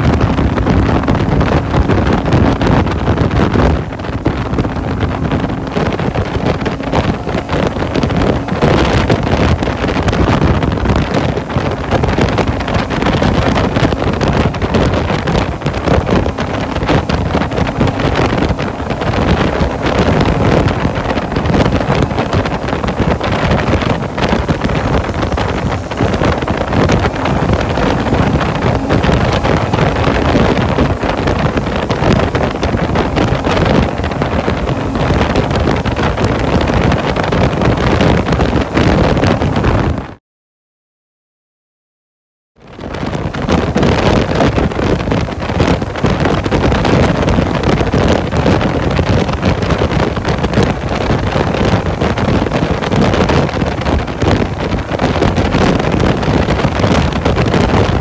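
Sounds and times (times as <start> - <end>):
motorcycle engine: 0.0 - 37.5
wind buffeting microphone: 0.0 - 40.2, 42.6 - 58.0.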